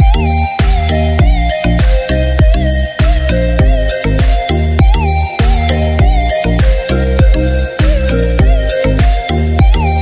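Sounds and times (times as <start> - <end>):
deep kick drums: 0.0 - 10.0
wavering synth melody: 0.0 - 10.0.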